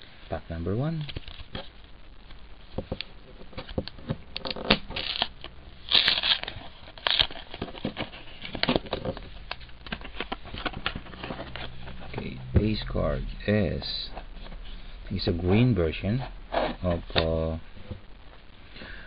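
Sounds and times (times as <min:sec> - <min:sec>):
wrapper tearing and crinkling: 0:03.6 - 0:12.2.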